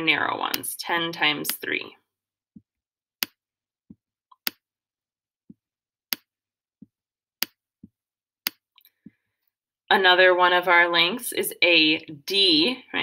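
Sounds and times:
soft dull pen taps: 5.5s - 9.3s.

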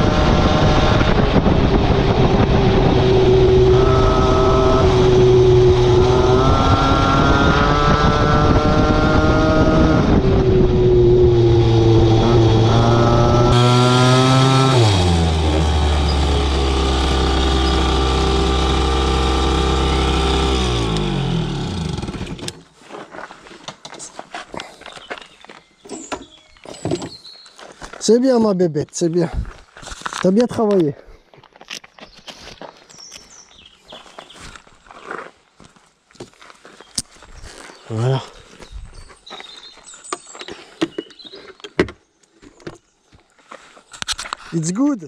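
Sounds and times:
moped engine running: 0.0s - 22.6s.

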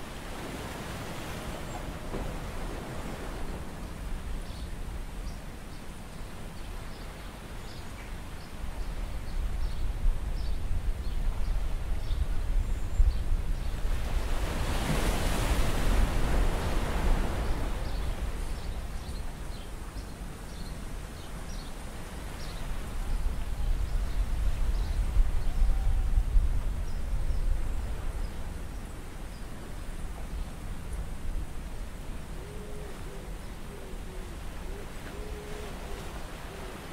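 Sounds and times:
sea noise: 0.0s - 9.5s, 11.7s - 36.9s
wind: 0.0s - 36.9s.

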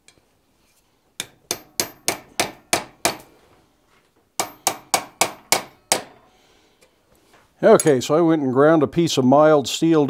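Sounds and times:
hammer ringing on hot metal: 1.2s - 3.2s, 4.4s - 6.3s.

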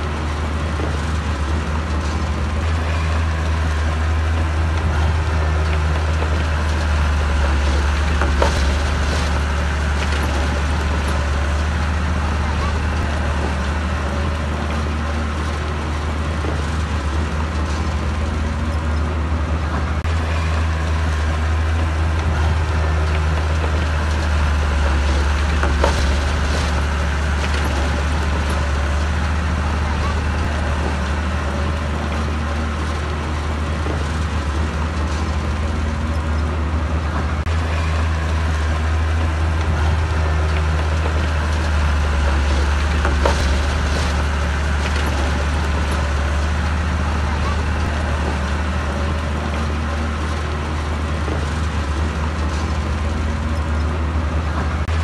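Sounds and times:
heavy diesel engine under load: 0.0s - 55.0s
sharp knocks: 21.7s - 31.4s.

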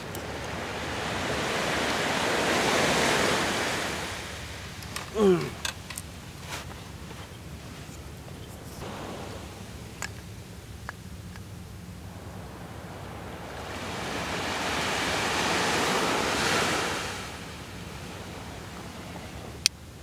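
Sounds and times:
sea wave washing on beach: 0.0s - 5.6s, 8.8s - 10.5s, 12.0s - 19.6s.

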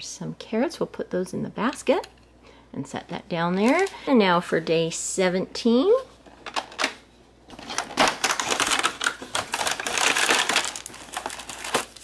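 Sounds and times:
plastic bag crinkling: 7.5s - 12.0s
cardboard tearing: 7.6s - 12.0s.

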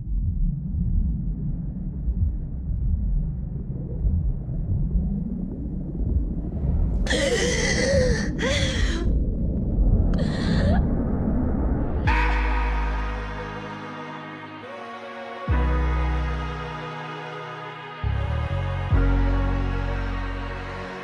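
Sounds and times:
low steady rumble: 0.0s - 13.6s
woman gasping: 7.1s - 9.1s, 10.2s - 10.8s.

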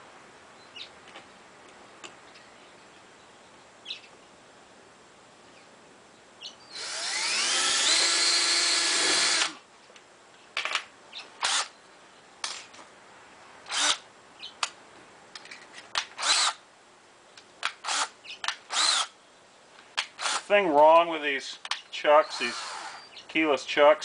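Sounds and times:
cordless drill whining: 6.8s - 9.6s, 11.4s - 11.7s, 13.7s - 14.0s, 16.2s - 16.6s, 17.8s - 18.1s, 18.7s - 19.1s, 20.2s - 20.5s, 22.2s - 23.1s
drill trigger blips: 6.8s - 9.6s, 22.2s - 23.1s.

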